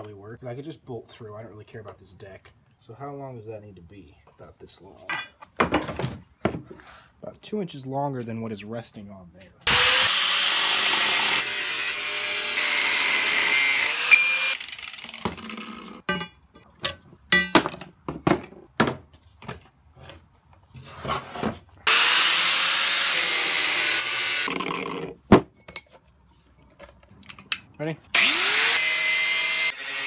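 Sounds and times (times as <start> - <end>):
angle grinder cutting steel: 9.6 - 16.0, 21.8 - 25.1, 28.1 - 30.0.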